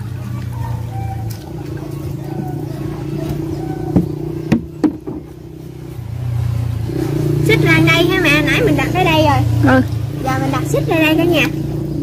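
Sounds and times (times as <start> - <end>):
motor engine running: 0.0 - 12.0
sharp knocks: 3.9 - 5.4.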